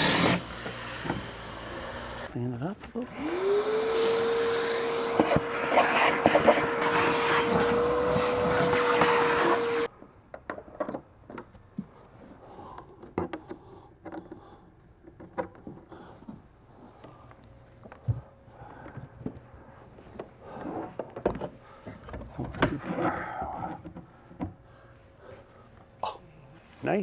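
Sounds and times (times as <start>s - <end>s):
power tool motor whining: 0.0s - 2.3s, 3.1s - 9.9s.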